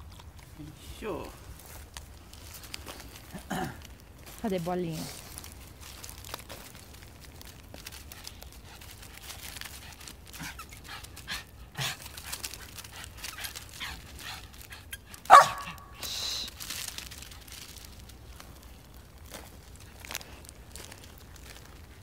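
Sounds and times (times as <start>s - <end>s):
dog barking: 15.3s - 15.9s.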